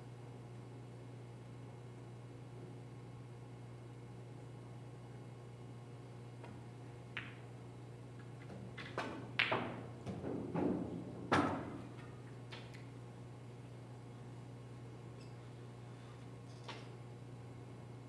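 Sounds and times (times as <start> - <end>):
billiard balls clacking: 7.1 - 7.5, 8.8 - 12.8.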